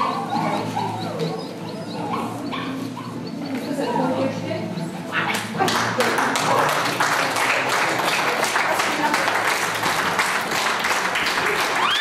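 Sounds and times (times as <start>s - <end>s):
chatter of voices: 0.0s - 12.0s
audience clapping: 5.3s - 12.0s.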